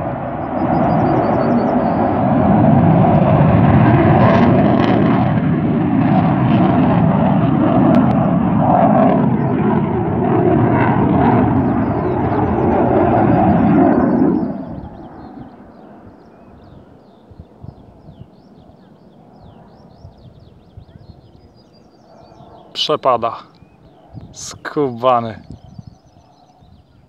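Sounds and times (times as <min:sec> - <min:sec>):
fighter jet engines rumbling: 0:00.0 - 0:27.0.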